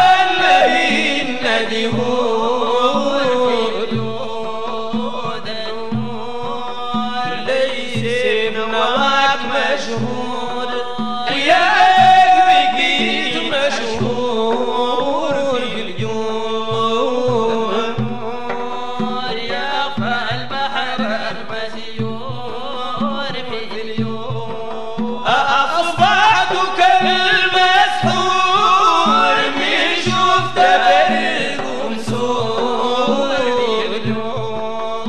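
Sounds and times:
voices chanting: 0.0 - 4.9, 11.3 - 15.8, 25.3 - 34.9
steady drum beat: 0.0 - 35.0.

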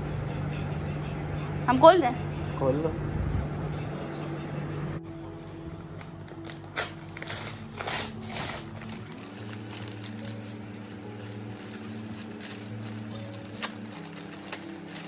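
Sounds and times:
paper bag tearing: 6.0 - 15.0.

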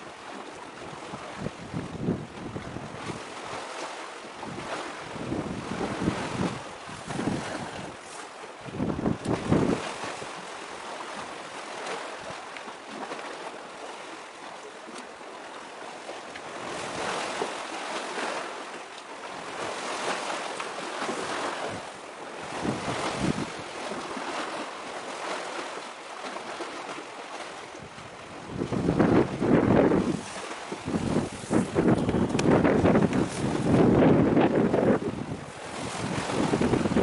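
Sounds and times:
waves washing against concrete: 0.0 - 37.0
wind gusting on microphone: 0.8 - 10.5, 16.5 - 18.4, 19.4 - 24.6, 27.7 - 37.0.

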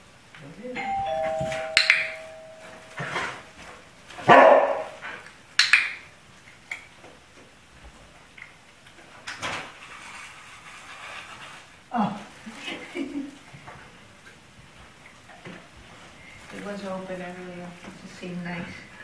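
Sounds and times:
two-tone doorbell chime: 0.8 - 3.4
dog barking: 4.2 - 5.0.

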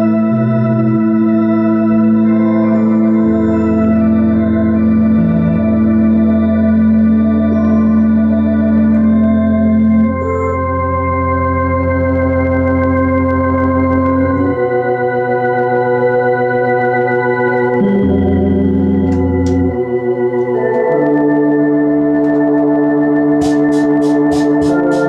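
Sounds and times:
organ playing sustained chords: 0.0 - 25.0.

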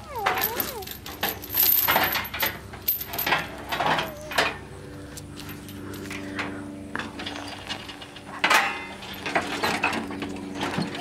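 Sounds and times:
steel chain rattling: 0.0 - 4.6.

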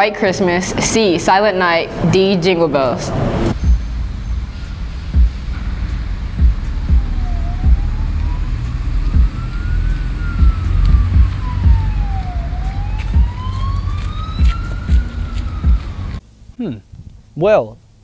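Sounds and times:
loud low rumble: 0.4 - 16.2
siren wailing: 1.4 - 16.2
irregular thumps: 3.6 - 12.2, 13.0 - 13.5.

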